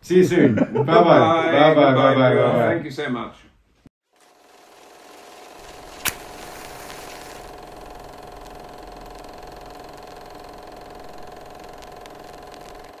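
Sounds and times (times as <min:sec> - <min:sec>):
small machine motor whirring: 0:04.1 - 0:13.0.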